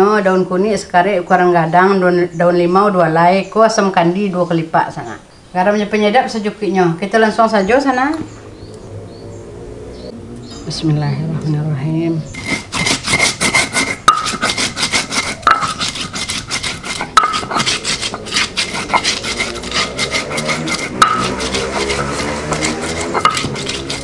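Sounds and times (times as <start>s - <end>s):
stone grinder rubbing: 12.3s - 24.0s
stone knocking on stone: 12.8s - 14.7s, 15.4s - 24.0s.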